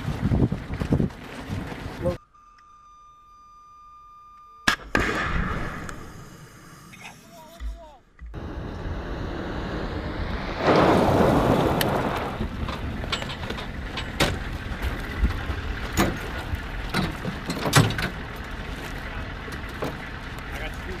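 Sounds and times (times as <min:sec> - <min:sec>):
tyres rushing over gravel: 0:00.0 - 0:02.2, 0:10.0 - 0:21.0
vehicle engine rumbling: 0:00.0 - 0:02.3, 0:03.1 - 0:21.0
metallic clunks and knocks: 0:12.6 - 0:18.2.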